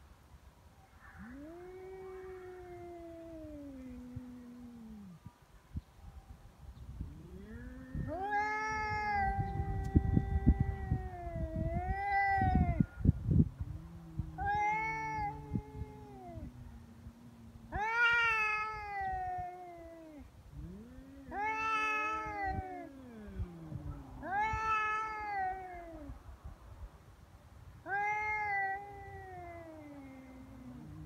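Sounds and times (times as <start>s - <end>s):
cats yowling: 1.0s - 5.2s, 7.1s - 13.0s, 13.6s - 26.2s, 27.8s - 31.0s
rough low noise: 13.1s - 19.0s.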